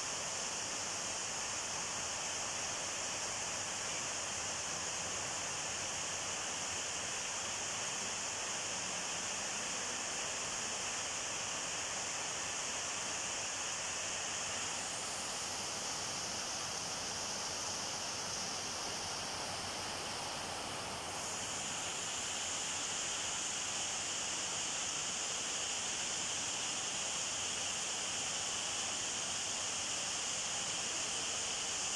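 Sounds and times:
steady bright hiss: 0.0s - 31.9s.

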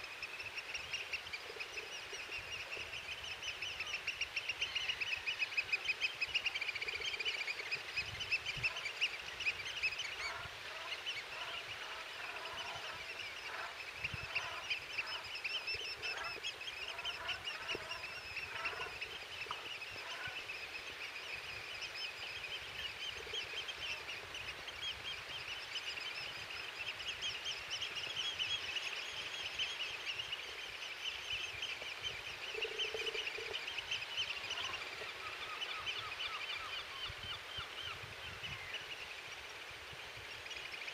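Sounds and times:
flock of birds calling: 0.0s - 38.9s
lower-pitched bird calls: 8.3s - 20.8s.

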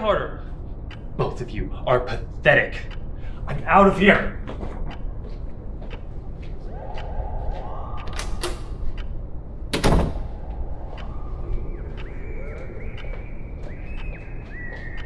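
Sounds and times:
low steady drone: 0.0s - 15.0s
faint clicks: 5.8s - 9.4s, 10.2s - 15.0s
faint gliding high tones: 6.1s - 14.8s.

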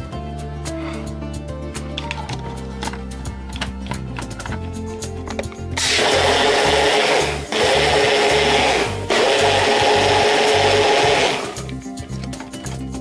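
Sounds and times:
blender motor whirring: 5.8s - 11.7s.

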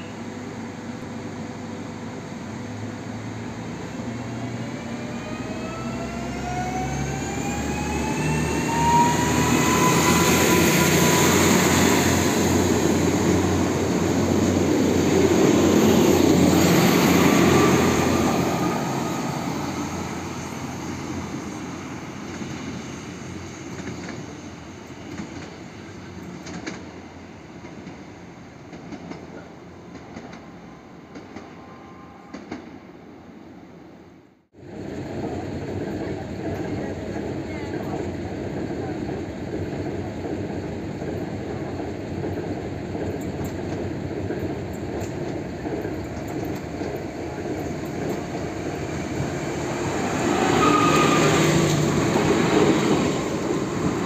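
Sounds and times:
train cars running noise: 0.1s - 33.0s, 34.6s - 54.0s
electric train traction whine: 2.5s - 25.2s, 44.5s - 54.0s.

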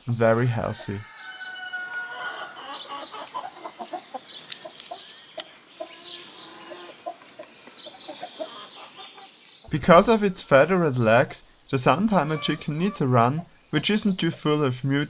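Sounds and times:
chickens clucking: 0.1s - 15.0s
chicks peeping: 0.2s - 9.7s, 10.5s - 15.0s.

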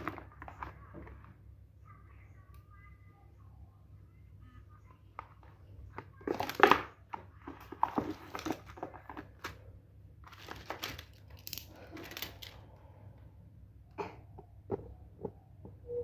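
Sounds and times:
packaging crinkling: 7.5s - 9.6s, 10.2s - 12.6s.

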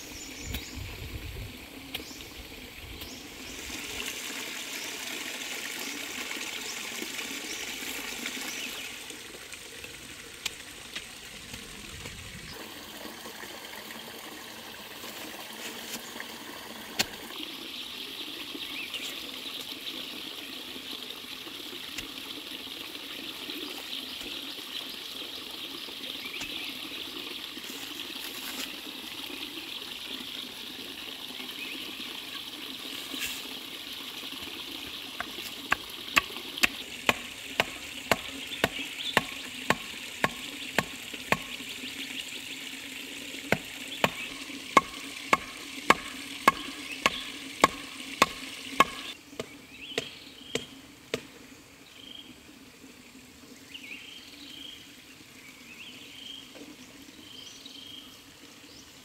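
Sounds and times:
stream hissing: 0.0s - 59.0s
wooden club knocking on stake: 44.8s - 51.3s.

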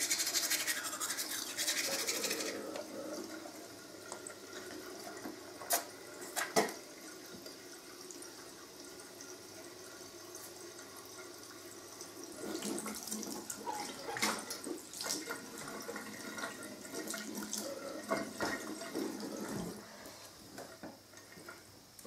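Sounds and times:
tap water splashing into sink: 4.0s - 7.6s, 12.4s - 19.8s.

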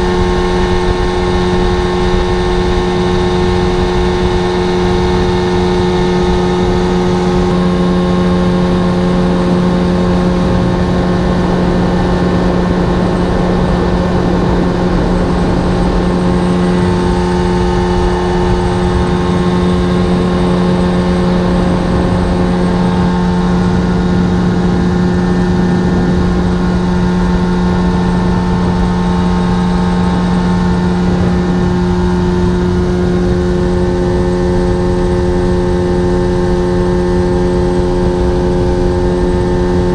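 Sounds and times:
outboard motor running: 0.0s - 39.9s.

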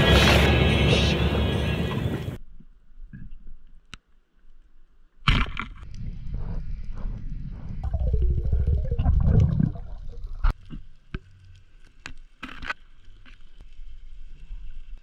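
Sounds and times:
underwater rush of water: 7.6s - 10.5s.

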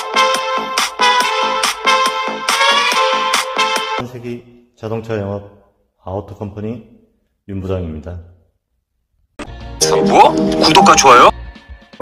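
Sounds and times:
electronic dance music: 0.0s - 4.0s, 9.5s - 11.3s.

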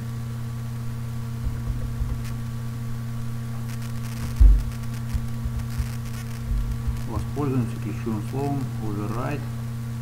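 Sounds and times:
electrical hum: 0.0s - 10.0s
low thumps: 1.2s - 7.5s.

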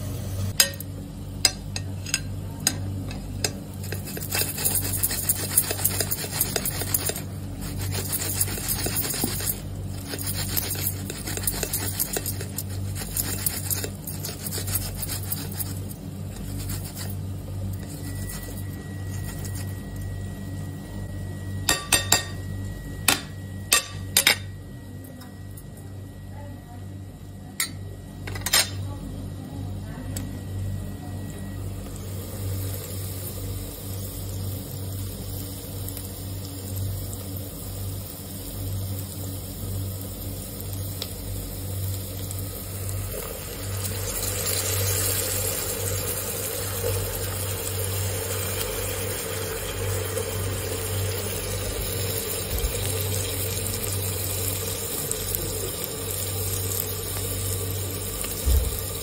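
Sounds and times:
constant low hum: 0.0s - 59.0s
spoon clinking against metal grater: 1.5s - 17.2s.

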